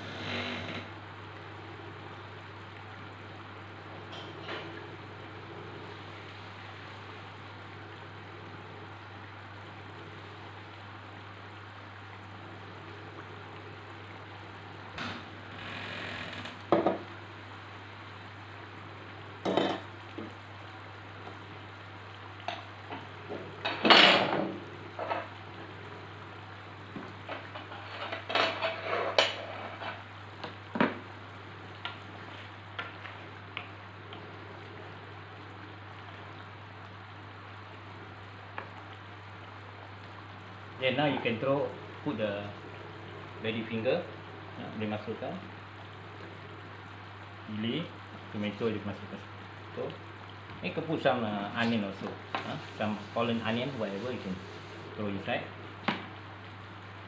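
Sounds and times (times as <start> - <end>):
curry simmering in a wok: 0.9 - 14.9, 17.0 - 57.0
kitchen utensils clattering: 27.5 - 30.0.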